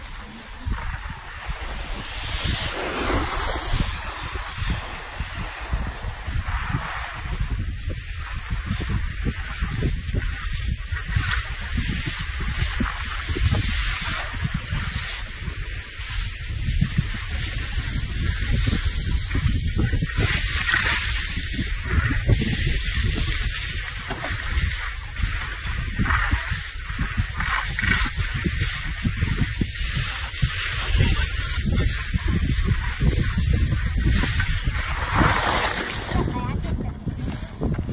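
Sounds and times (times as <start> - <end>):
skis sliding on snow: 0.0 - 37.9
wind buffeting microphone: 0.0 - 37.9.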